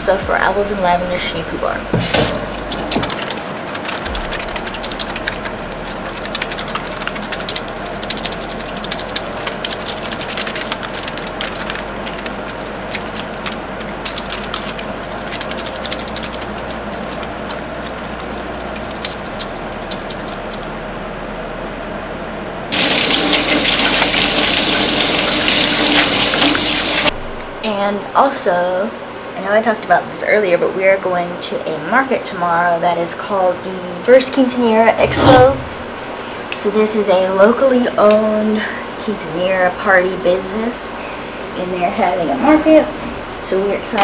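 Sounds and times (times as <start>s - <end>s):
soapy hands rubbing: 2.4s - 20.6s
water running into metal sink: 22.7s - 27.1s.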